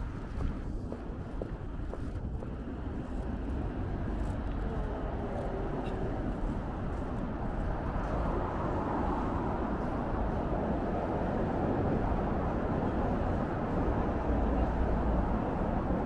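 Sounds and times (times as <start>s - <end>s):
passing cars hum: 0.0s - 16.0s.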